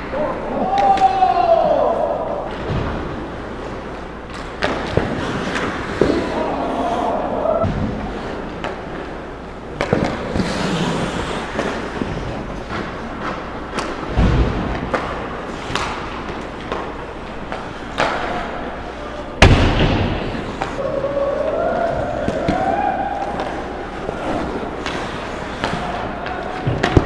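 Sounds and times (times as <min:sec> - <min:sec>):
sticks and puck clacking: 0:00.0 - 0:27.0
skates scraping ice: 0:03.0 - 0:19.3, 0:20.0 - 0:27.0
hard impacts: 0:19.4 - 0:20.8.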